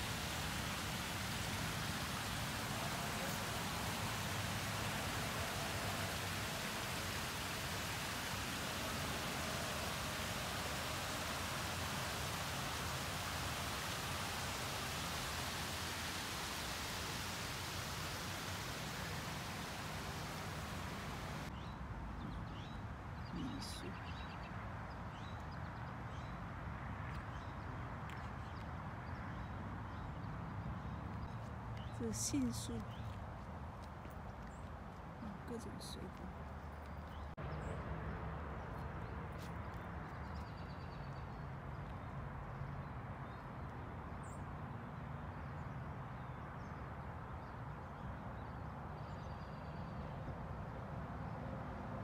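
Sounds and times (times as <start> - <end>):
low rumble and hiss: 0.0 - 21.5.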